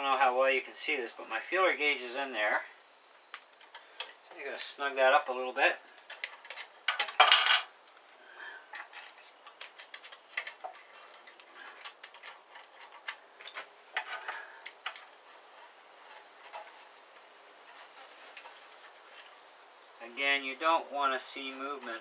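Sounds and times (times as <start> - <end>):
quiet metal clicks and scrapes: 8.7 - 19.6.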